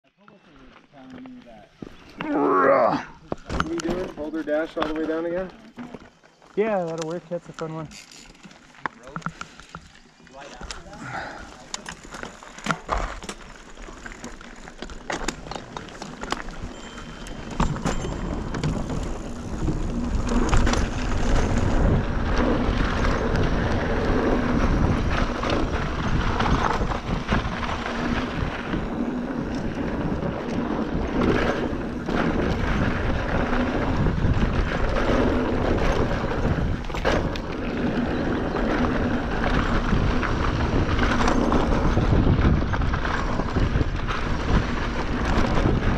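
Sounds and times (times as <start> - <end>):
wheels rumbling on track: 10.6 - 45.9
wind on microphone: 16.6 - 45.9.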